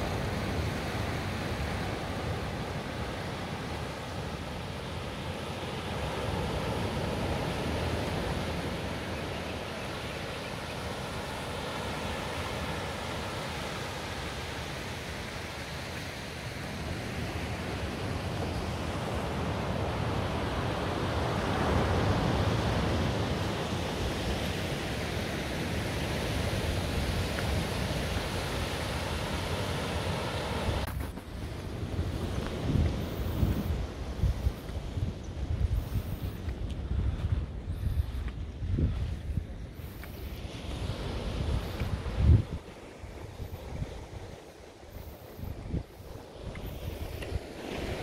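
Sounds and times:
surf washing over rocks: 0.0 - 36.5, 39.7 - 48.0
wind rumbling on microphone: 16.9 - 48.0.

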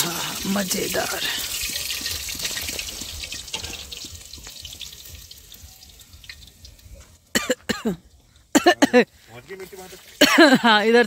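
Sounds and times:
oil sizzling in a pan: 0.0 - 7.4.

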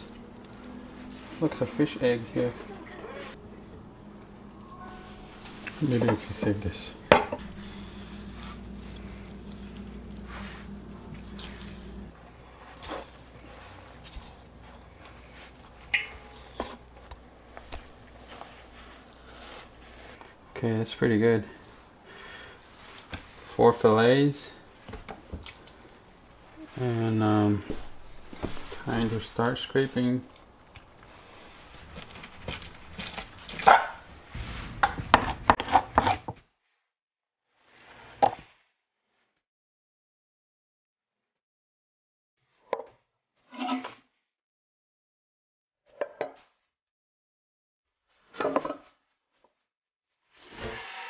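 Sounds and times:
faint low hum: 0.0 - 23.6
spoon scraping fish flesh: 7.4 - 14.8.

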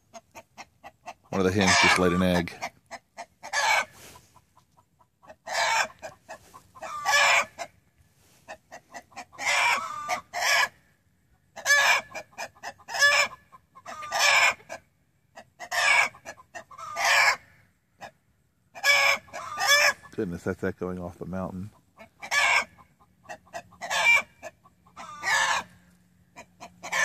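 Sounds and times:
hen clucking and cackling: 0.0 - 20.4, 21.4 - 27.0.

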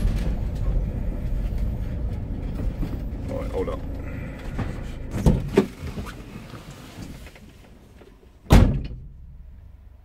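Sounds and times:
van door slamming: 5.0 - 6.2, 8.4 - 9.4.

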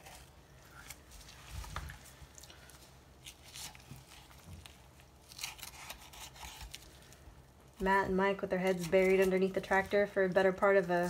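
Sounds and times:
low steady hum: 0.0 - 11.0
knife slicing raw meat: 3.3 - 6.9.

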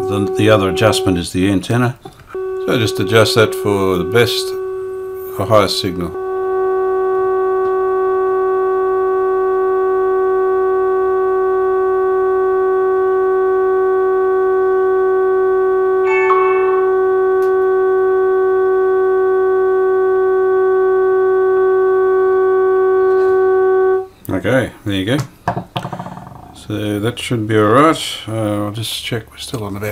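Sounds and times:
radio test tone with overtones: 0.0 - 1.3, 2.3 - 14.3, 16.0 - 18.0.

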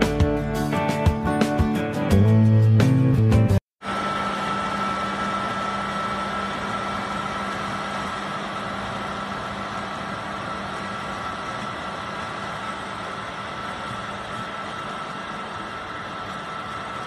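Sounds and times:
music: 0.0 - 3.6
thin steady whine: 3.8 - 17.0
tractor engine running: 3.8 - 17.0.

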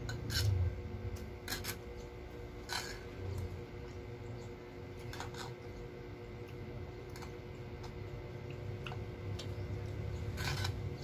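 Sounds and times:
fork scraping plastic tray: 0.1 - 0.7, 1.4 - 2.0, 2.6 - 3.5, 10.2 - 11.0.

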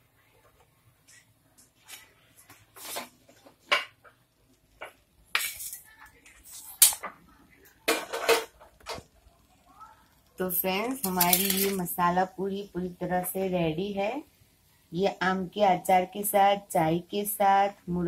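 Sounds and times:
steel utensils clattering: 11.0 - 11.9.

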